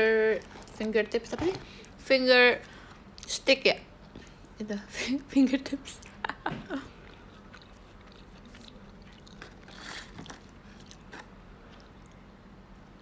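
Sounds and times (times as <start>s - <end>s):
chewing and crunching snack: 6.8s - 12.3s.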